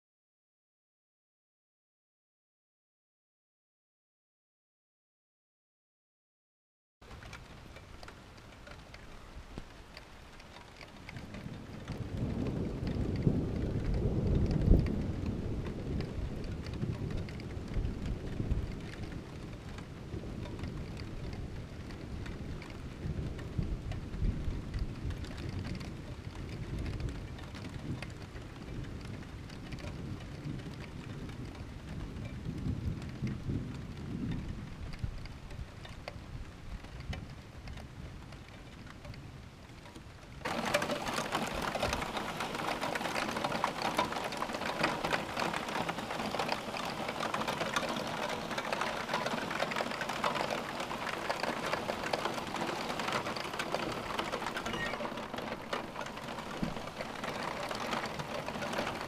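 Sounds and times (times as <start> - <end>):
heavy rain falling: 7.0 - 59.0
light rain: 7.0 - 59.0
thunder rumbling: 10.9 - 35.5, 40.4 - 59.0.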